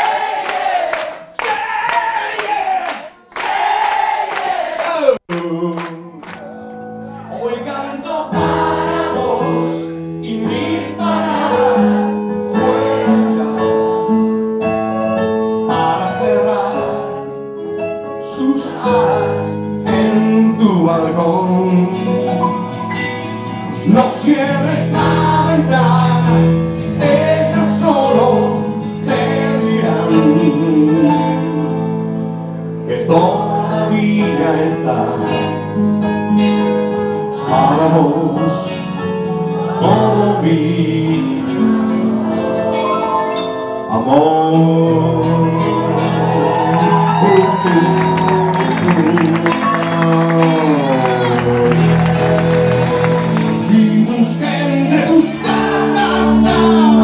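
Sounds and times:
man singing into microphone: 4.8s - 6.7s, 7.3s - 13.3s, 15.6s - 17.2s, 18.2s - 23.1s, 23.7s - 32.0s, 32.8s - 35.7s, 37.4s - 42.2s, 43.8s - 57.0s
electric guitar: 44.6s - 57.0s.

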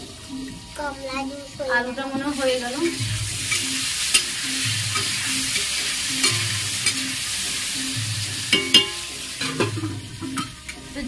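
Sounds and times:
potatoes sizzling in oil: 0.0s - 11.0s
spatula clinking against pan: 3.5s - 7.1s, 8.5s - 10.8s.

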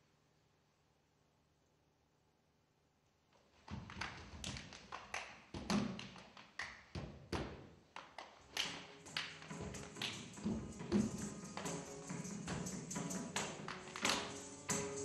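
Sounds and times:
sharp percussion strikes: 9.0s - 15.0s.

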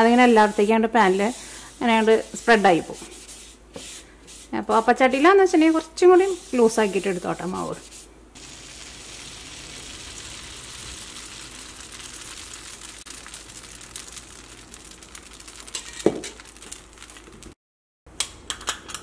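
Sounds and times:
batter sizzling on hot pan: 8.4s - 17.2s.

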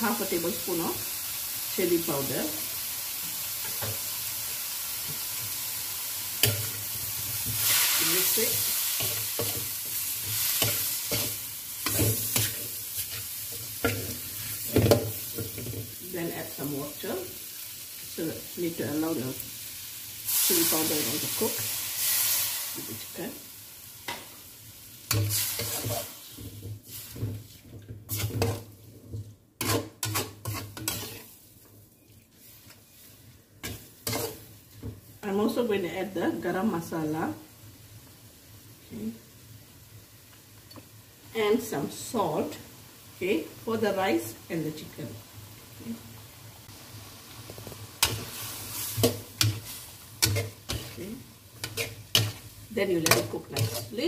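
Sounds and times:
food sizzling in hot oil: 0.0s - 54.0s
metal spatula scraping pan: 7.6s - 15.8s, 25.1s - 28.8s, 29.6s - 31.4s, 32.4s - 34.5s, 48.0s - 54.0s.

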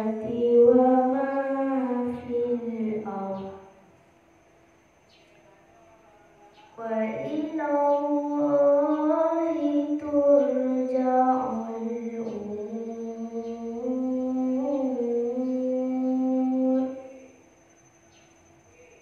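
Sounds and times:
girl chanting melodically: 0.0s - 3.8s, 6.5s - 17.3s.

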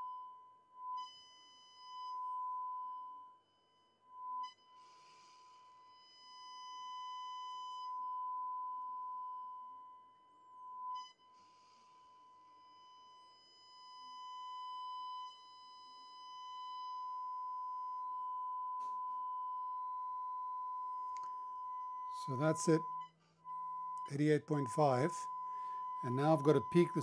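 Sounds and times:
radio test tone: 21.7s - 23.0s, 24.0s - 27.0s.

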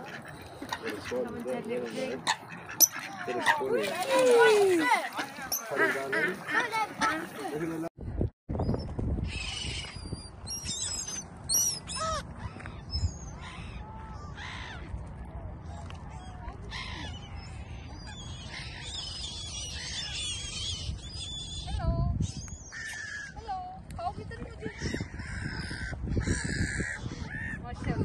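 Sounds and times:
gulls squawking: 0.0s - 7.9s.

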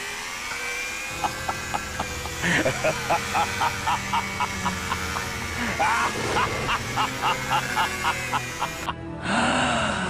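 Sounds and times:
electric polisher motor whine: 0.0s - 9.1s.

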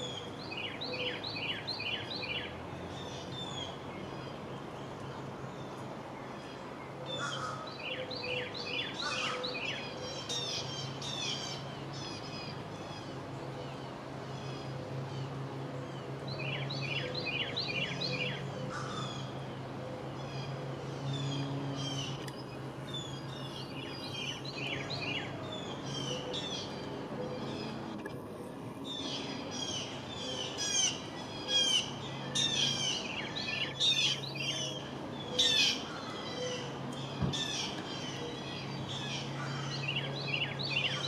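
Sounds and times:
small birds chirping: 0.0s - 28.2s, 28.8s - 41.0s.

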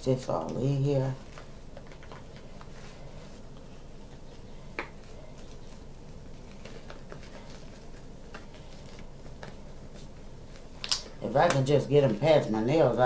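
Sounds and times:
plastic glove crinkling: 0.4s - 13.0s.

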